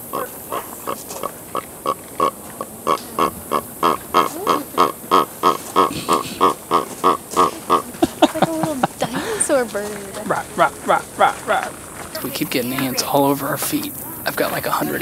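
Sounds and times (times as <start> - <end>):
bird honking yelps: 0.0 - 8.2.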